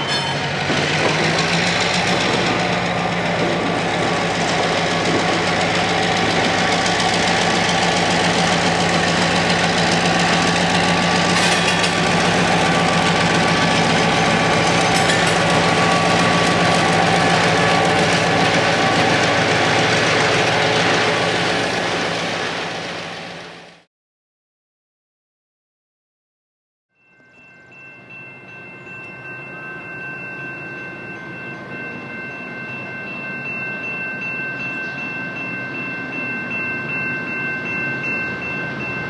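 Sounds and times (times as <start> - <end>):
freight cars rumbling: 0.0 - 23.8
diesel locomotive engines: 0.0 - 23.9, 27.2 - 39.0.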